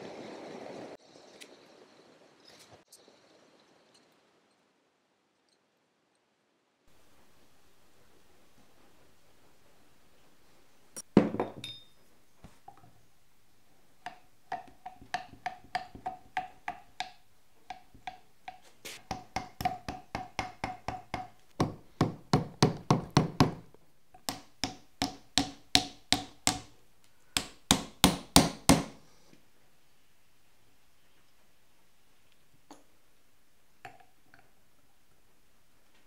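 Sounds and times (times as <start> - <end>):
mallet tapping metal: 14.0 - 23.6, 24.2 - 26.7.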